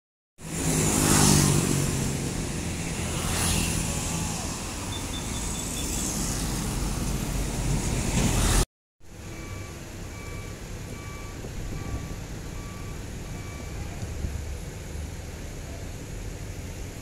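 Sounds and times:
vehicle engines humming: 0.4 - 17.0
car driving past: 0.5 - 8.6.

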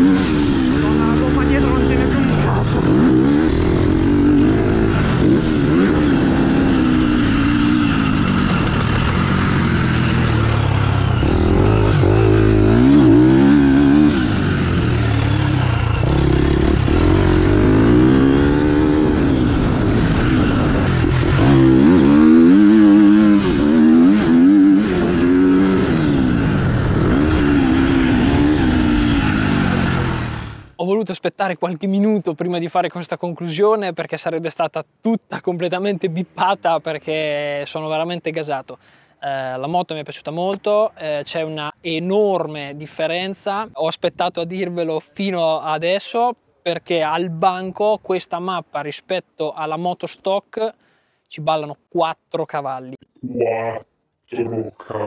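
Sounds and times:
motocross bike engine revving: 0.0 - 30.8.

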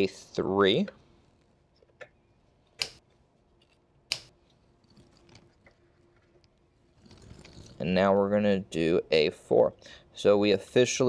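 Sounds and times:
sharp plastic clicks: 4.1 - 4.3.

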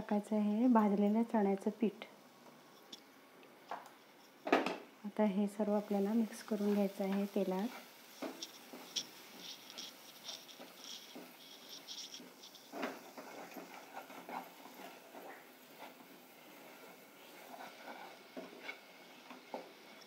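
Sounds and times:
light crackling: 0.0 - 4.5, 5.4 - 20.0
spatula scraping paste in pan: 6.4 - 20.0.

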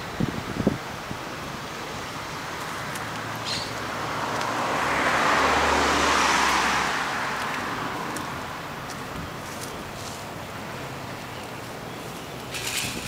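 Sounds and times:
car driving past: 3.6 - 8.2.

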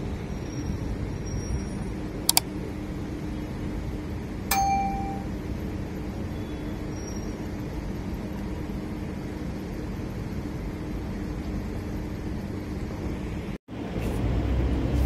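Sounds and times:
steady background hum: 0.0 - 15.0
bright bell ding: 4.5 - 5.3.

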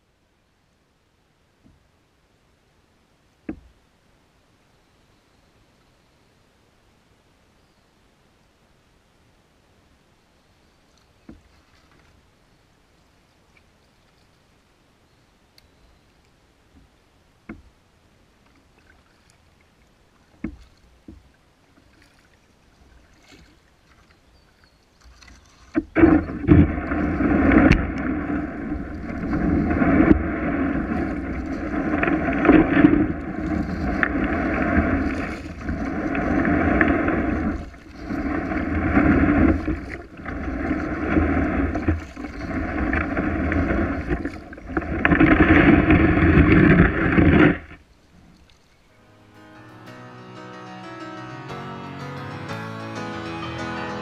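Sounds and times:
paddle splashing in water: 10.9 - 12.5, 16.8 - 49.0.

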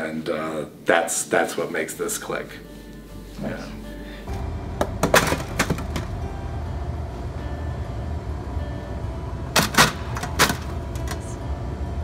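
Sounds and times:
steady low hum: 3.6 - 12.0.

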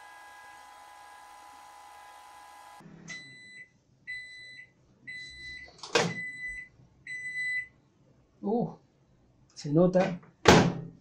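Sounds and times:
microwave oven humming: 0.0 - 3.4.

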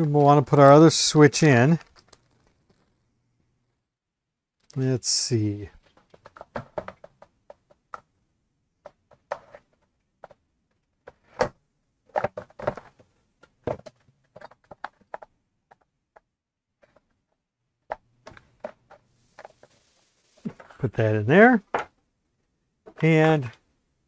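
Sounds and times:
hands clicking and knocking plastic: 1.8 - 2.9, 5.8 - 8.2, 8.8 - 19.6.

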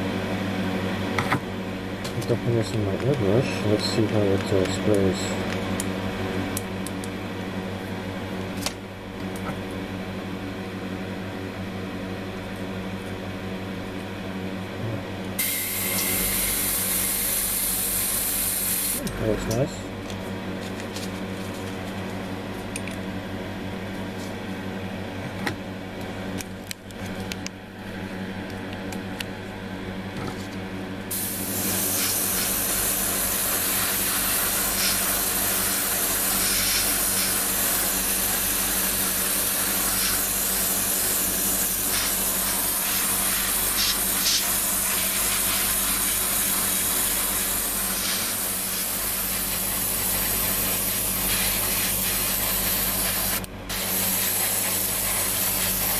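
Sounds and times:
steady mechanical hum: 0.0 - 55.9
airbrush spraying hiss: 15.4 - 19.0, 31.1 - 55.9.

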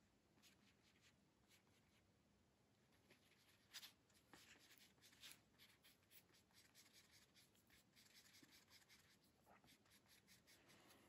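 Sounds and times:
paintbrush scratching strokes: 2.9 - 11.0.

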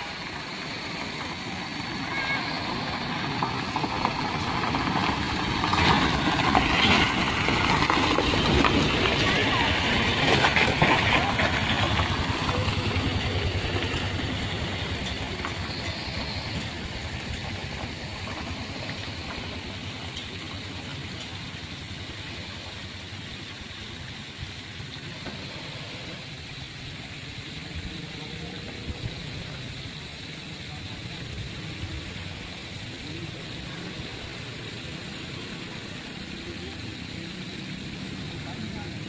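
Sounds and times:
scooter engine pulling away: 0.0 - 23.5
low engine rumble: 0.0 - 39.0.

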